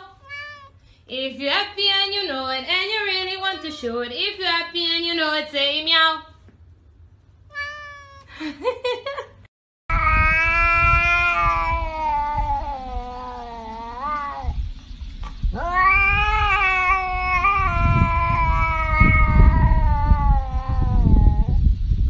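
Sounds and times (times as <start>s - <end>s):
cat yowling: 0.0s - 0.8s, 7.5s - 8.3s, 9.9s - 14.6s, 15.6s - 21.6s.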